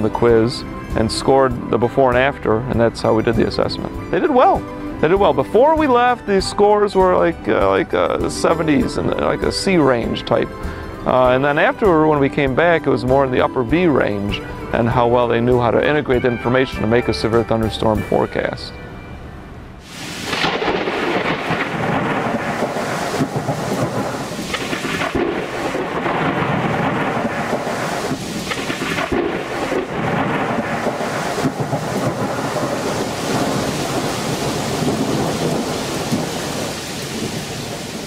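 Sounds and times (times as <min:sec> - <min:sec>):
heavy rain: 0:19.8 - 0:38.0
rolling thunder: 0:19.9 - 0:38.0.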